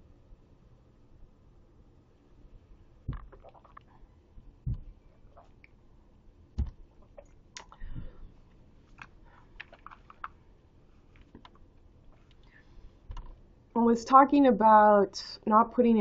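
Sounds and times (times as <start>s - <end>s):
computer keyboard tapping: 9.0s - 10.4s, 13.1s - 13.4s.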